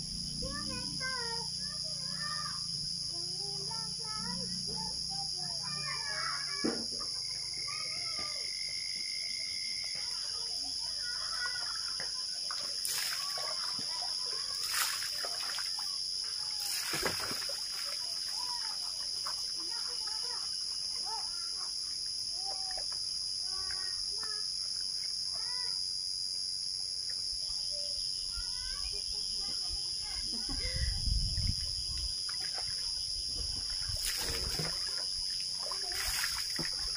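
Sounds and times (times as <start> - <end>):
water splashing: 11.8 - 20.0, 32.3 - 36.9.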